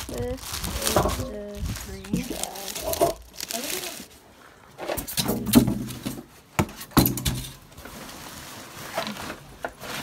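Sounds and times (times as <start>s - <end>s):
rummaging among bags and boxes: 0.0s - 10.0s
knocks of objects being moved: 0.6s - 3.5s, 4.7s - 8.0s.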